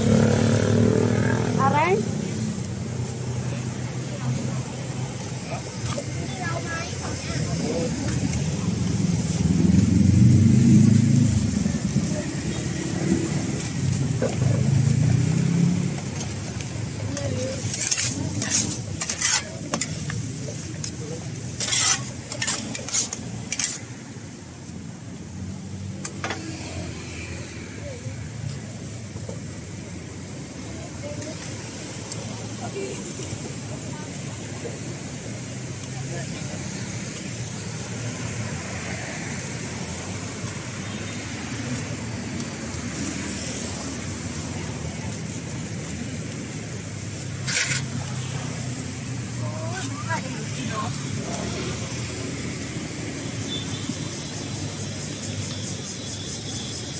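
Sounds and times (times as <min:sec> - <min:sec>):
cars and motorbikes passing: 0:00.0 - 0:56.9
metal ladles scraping frying pan: 0:17.4 - 0:20.7, 0:21.5 - 0:23.9, 0:47.4 - 0:48.1.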